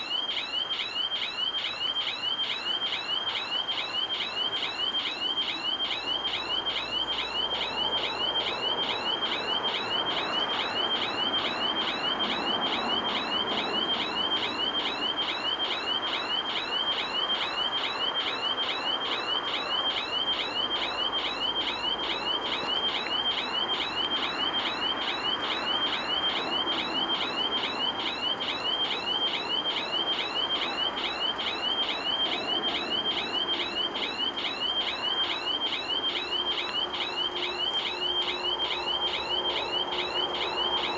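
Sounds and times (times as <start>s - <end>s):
level crossing warning bell: 0.0s - 40.9s.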